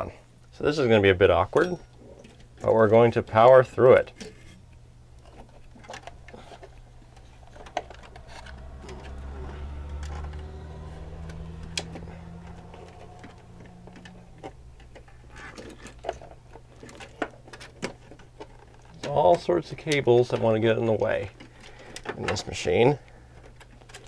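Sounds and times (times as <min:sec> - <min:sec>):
steady low hum: 0:00.0 - 0:22.1
low rumble: 0:04.9 - 0:16.7.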